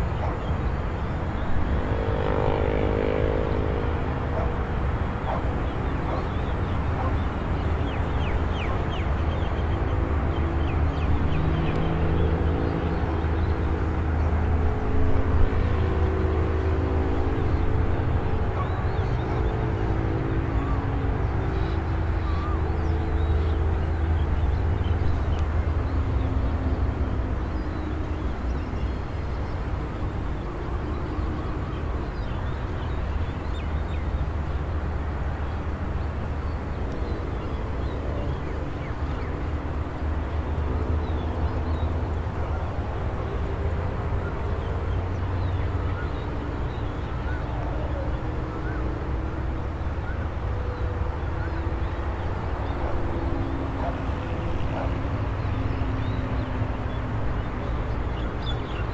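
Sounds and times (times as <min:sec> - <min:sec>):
distant engines rumbling: 0:00.0 - 0:58.9.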